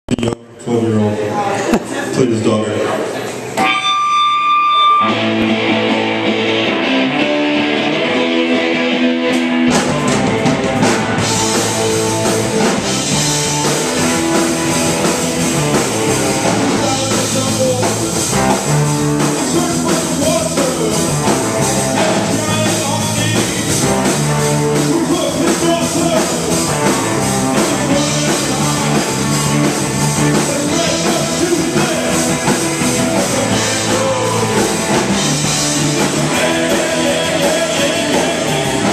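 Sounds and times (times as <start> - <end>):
bass: 0.0 - 38.9
electric guitars: 3.1 - 38.9
drum kit: 4.9 - 38.9
man singing lead vocal: 16.5 - 18.2, 19.2 - 23.9, 24.7 - 38.9.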